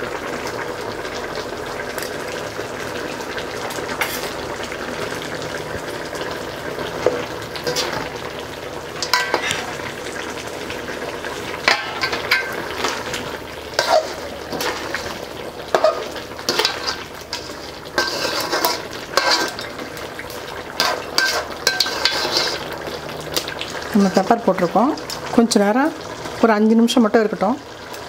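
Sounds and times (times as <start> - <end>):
gravy sizzling: 0.0 - 28.0
metal spoon scraping pot: 7.6 - 8.1, 9.0 - 9.8, 13.8 - 19.8, 20.7 - 22.8
spoon clinking against pot: 9.0 - 9.7, 20.8 - 22.6.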